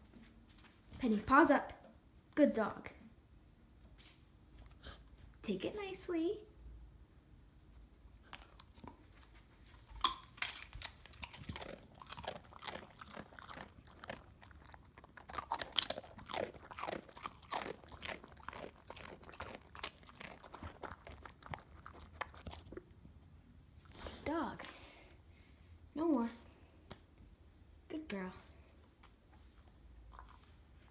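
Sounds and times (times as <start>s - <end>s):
dog crunching a chip: 8.2s - 22.9s.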